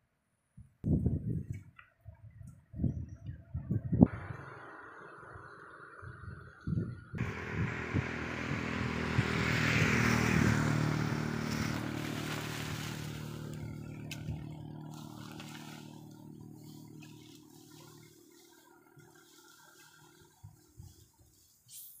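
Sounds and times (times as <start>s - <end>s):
motor vehicle passing by: 4.1s - 21.5s.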